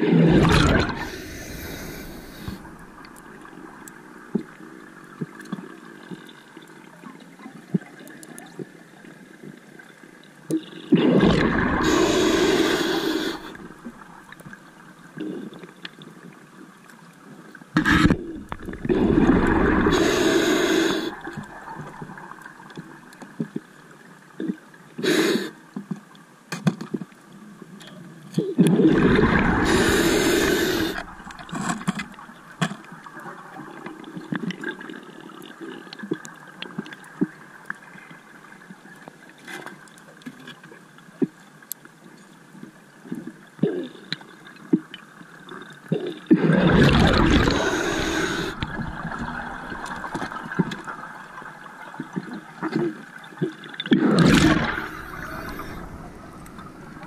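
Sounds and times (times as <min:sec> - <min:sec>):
underwater bubbles rushing: 0:00.0 - 0:05.7, 0:10.6 - 0:14.6, 0:17.8 - 0:23.1, 0:28.6 - 0:34.9, 0:46.4 - 0:57.0.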